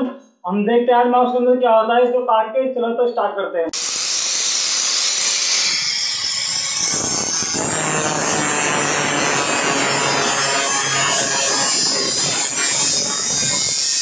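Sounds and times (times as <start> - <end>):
angle grinder cutting plastic: 3.8 - 14.0.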